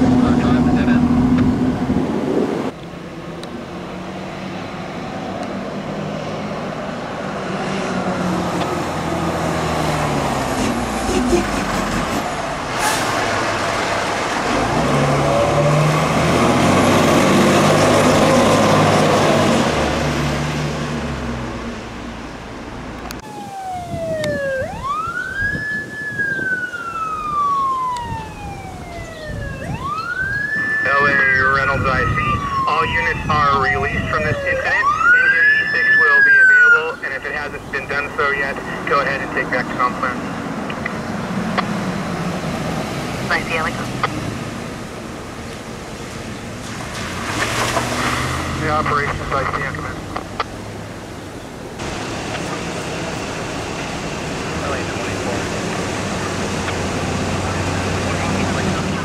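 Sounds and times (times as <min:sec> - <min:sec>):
fire engine diesel engine: 0:00.0 - 0:59.0
electronic wail siren: 0:23.2 - 0:39.5
fire engine siren: 0:23.2 - 0:40.5.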